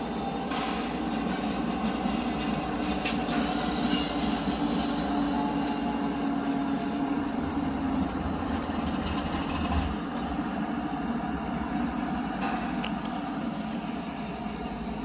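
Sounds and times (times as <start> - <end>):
diesel locomotive drone: 0.0 - 15.0
freight cars rumbling by: 6.8 - 13.5.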